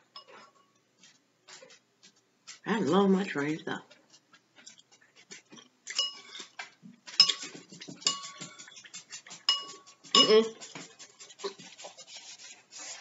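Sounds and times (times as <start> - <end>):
spoon clinking on ceramic bowl: 5.9 - 8.8, 9.4 - 10.7.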